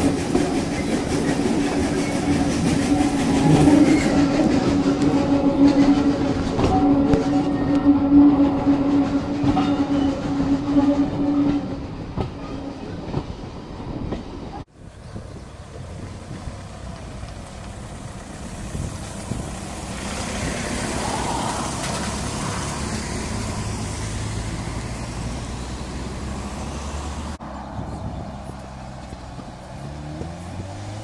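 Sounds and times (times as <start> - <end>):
cars driving past: 15.4 - 31.0.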